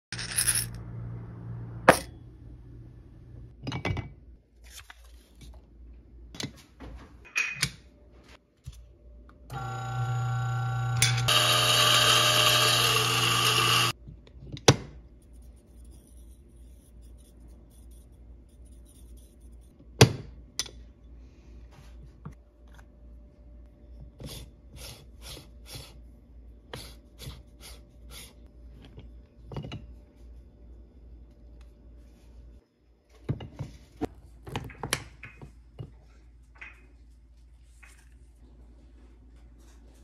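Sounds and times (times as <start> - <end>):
coffee grinder grinding beans: 9.5 - 14.0.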